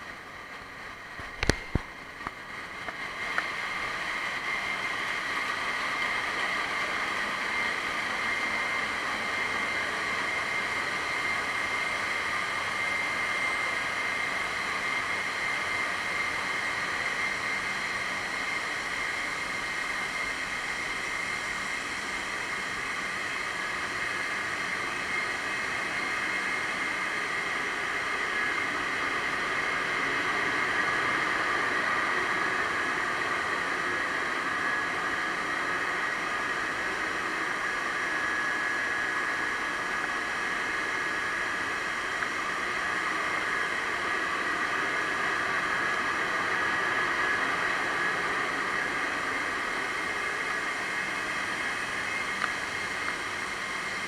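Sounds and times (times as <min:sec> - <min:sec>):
engine room machinery noise: 0:00.0 - 0:54.0
steady high whines: 0:00.0 - 0:54.0.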